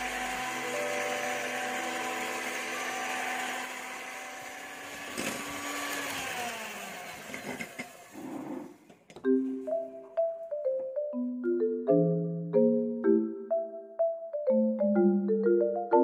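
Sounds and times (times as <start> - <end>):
electric hand mixer whirring: 0.0 - 8.8.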